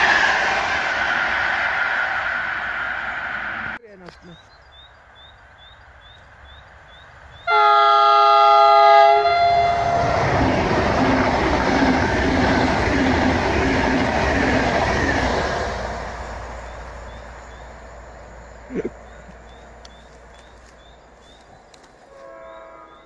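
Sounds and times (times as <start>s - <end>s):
train rushing past: 0.0s - 3.8s, 5.1s - 23.0s
train chord horn: 7.5s - 10.4s, 22.1s - 23.0s.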